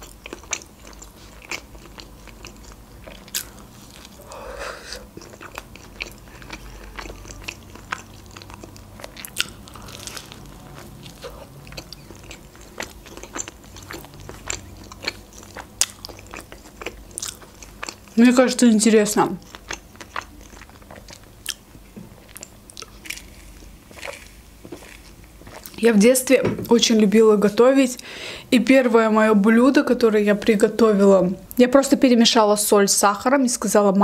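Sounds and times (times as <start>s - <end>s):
crunchy chewing: 0.0s - 18.7s, 19.4s - 25.8s.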